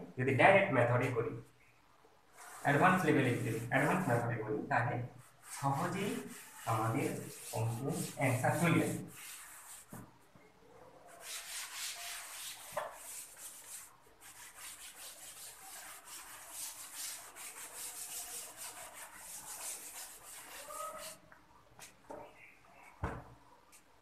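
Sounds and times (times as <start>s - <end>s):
cloth wiping a blackboard: 2.3s - 10.1s, 11.1s - 22.0s.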